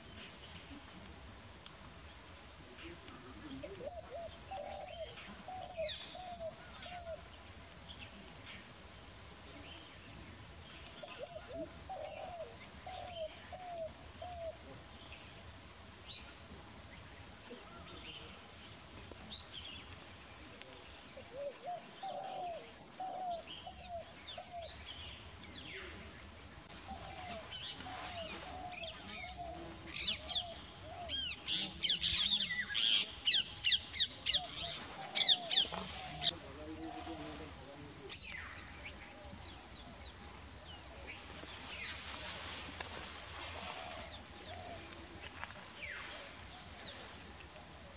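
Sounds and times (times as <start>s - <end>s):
high insect buzz: 4.0s - 47.9s.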